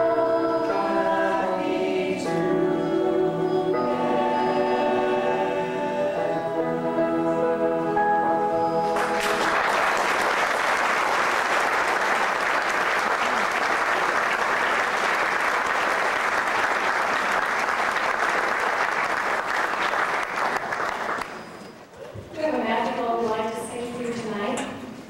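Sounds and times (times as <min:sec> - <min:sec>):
ensemble held chord: 0:00.0 - 0:09.8
audience applauding: 0:09.0 - 0:21.6.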